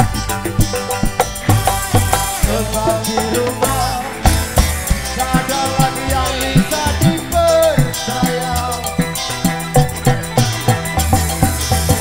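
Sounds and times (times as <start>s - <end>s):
band playing instrumental music: 0.0s - 12.0s
bending melodic lead line: 0.0s - 12.0s
deep bass: 0.0s - 12.0s
drum kit and hand drum: 0.0s - 12.0s.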